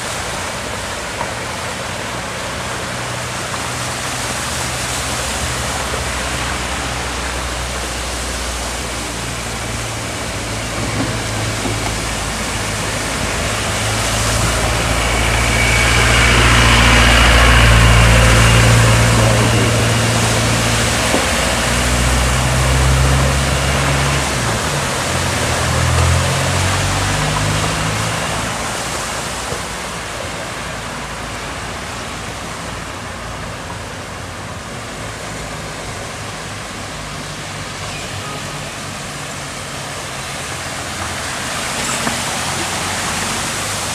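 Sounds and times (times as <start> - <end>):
floodwater rushing: 0.0 - 43.9
vehicle engine running: 9.5 - 25.1.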